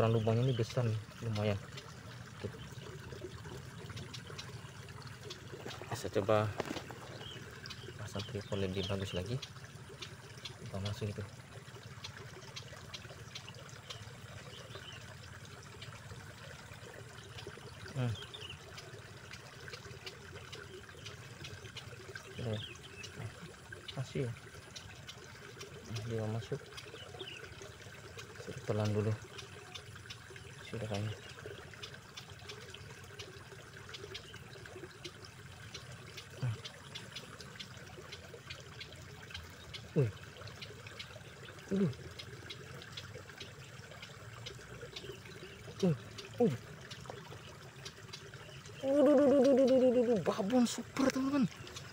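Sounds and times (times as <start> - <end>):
faint water trickle: 0.0 - 51.9
light ticks: 31.0 - 34.3.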